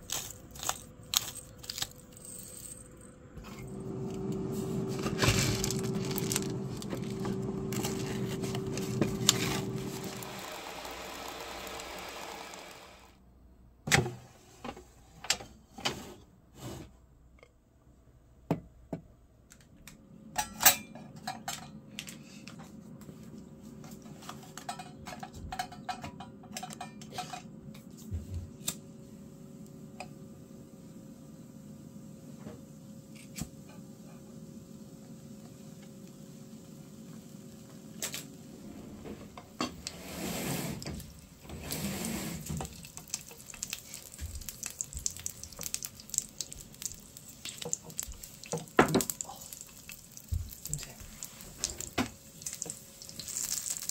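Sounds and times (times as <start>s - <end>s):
plastic packaging crinkling: 0.0s - 2.5s, 4.8s - 12.5s, 42.7s - 51.7s, 52.4s - 53.9s.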